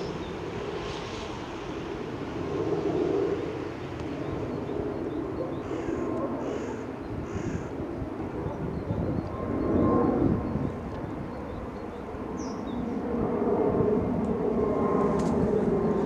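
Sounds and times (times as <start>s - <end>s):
jet airliner rumbling overhead: 0.0s - 16.0s
crow cawing: 5.6s - 7.8s.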